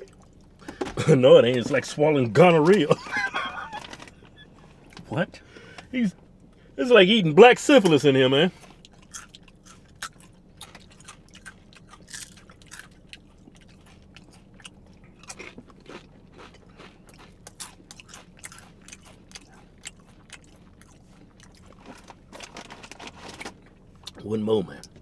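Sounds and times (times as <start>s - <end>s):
tortilla chips crunching: 8.6s - 24.2s.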